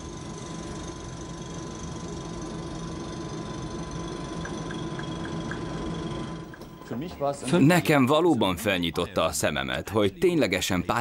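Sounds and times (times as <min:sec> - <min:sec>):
thin steady tone: 0:00.0 - 0:07.1
machine hum: 0:00.0 - 0:11.0.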